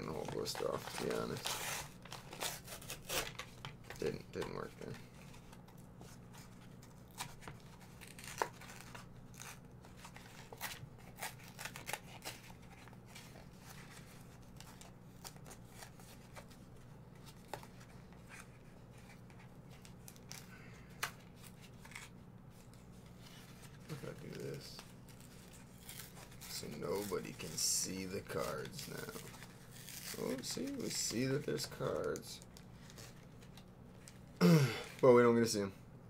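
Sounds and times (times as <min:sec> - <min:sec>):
plastic packaging crackling: 0:00.0 - 0:05.7, 0:23.4 - 0:34.3.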